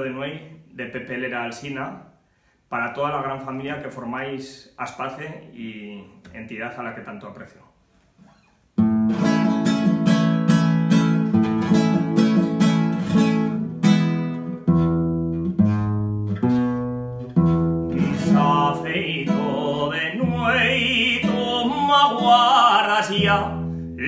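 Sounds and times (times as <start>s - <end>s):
classical guitar strumming: 8.3s - 24.0s
man singing: 17.9s - 24.0s.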